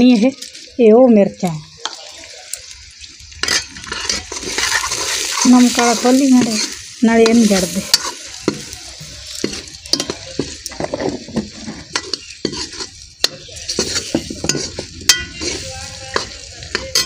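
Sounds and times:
onions sizzling in oil: 0:00.0 - 0:17.0
steel spoon scraping a pan: 0:03.3 - 0:17.0
metal clinks against pan: 0:09.4 - 0:10.5, 0:13.2 - 0:17.0.

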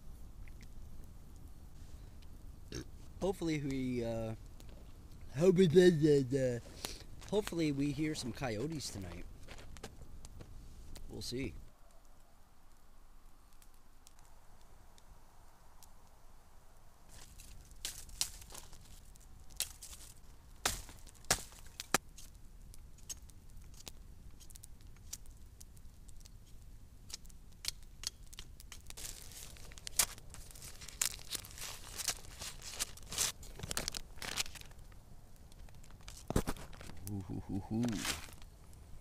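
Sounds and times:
sharp clicks and snaps: 0:23.0 - 0:25.3, 0:26.1 - 0:29.0
paper crinkling and tearing: 0:29.0 - 0:34.7, 0:35.8 - 0:37.1, 0:37.7 - 0:38.4.

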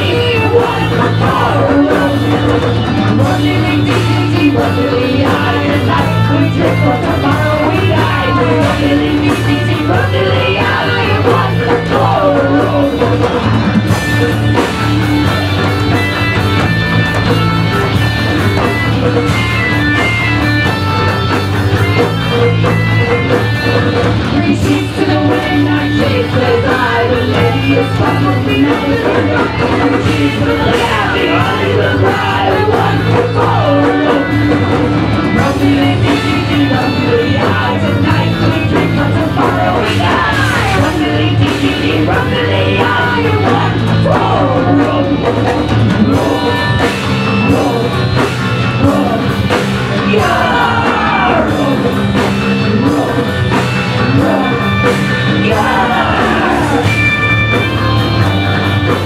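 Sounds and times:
woman singing: 0:00.0 - 0:13.4, 0:24.3 - 0:34.6, 0:35.3 - 0:53.5, 0:54.1 - 0:56.9
live rock band playing: 0:00.0 - 0:59.0.

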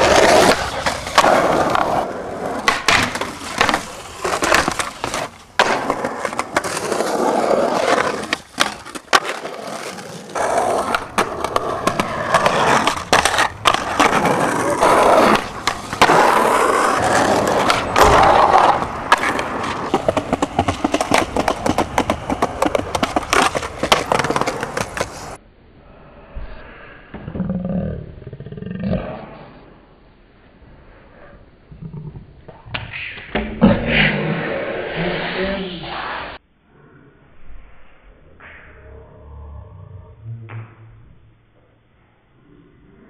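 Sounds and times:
skateboard clacks: 0:00.0 - 0:25.4
skateboard wheels rolling: 0:00.0 - 0:25.4.

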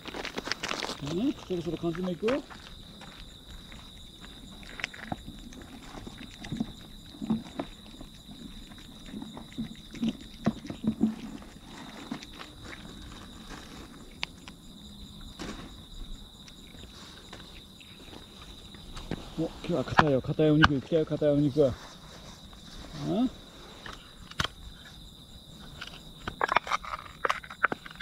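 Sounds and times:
cats crunching dry kibble: 0:00.0 - 0:15.3, 0:25.6 - 0:28.0
high insect trill: 0:00.0 - 0:28.0.

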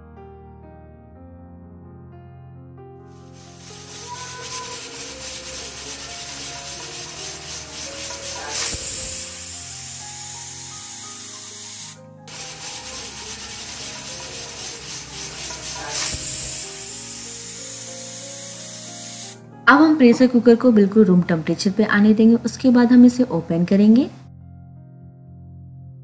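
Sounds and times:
pressure cooker hissing steam: 0:03.2 - 0:19.4
pressure cooker steam whistle: 0:03.3 - 0:19.4.

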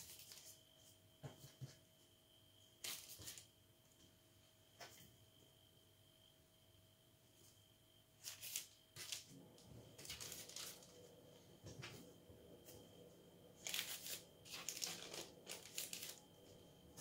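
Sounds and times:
baking parchment crinkling: 0:00.0 - 0:00.6, 0:02.8 - 0:03.5, 0:08.2 - 0:09.4, 0:10.0 - 0:11.1, 0:13.6 - 0:16.7.

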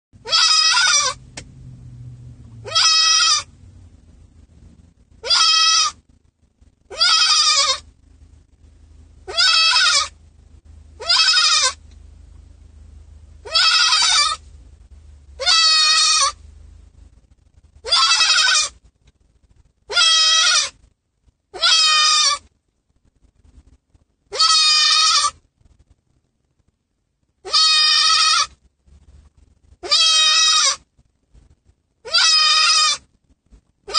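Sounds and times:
goat bleating loudly: 0:00.2 - 0:01.2, 0:02.6 - 0:03.5, 0:05.2 - 0:06.0, 0:06.9 - 0:07.8, 0:09.3 - 0:10.2, 0:11.0 - 0:11.8, 0:13.4 - 0:14.4, 0:15.4 - 0:16.4, 0:17.8 - 0:18.8, 0:19.9 - 0:20.8, 0:21.6 - 0:22.4, 0:24.3 - 0:25.4, 0:27.4 - 0:28.6, 0:29.8 - 0:30.8, 0:32.0 - 0:33.0.

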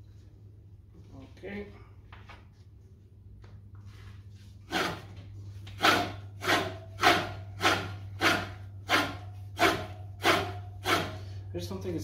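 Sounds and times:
steady low hum: 0:00.0 - 0:12.0
reel blades scraping bed knife: 0:05.7 - 0:11.3.

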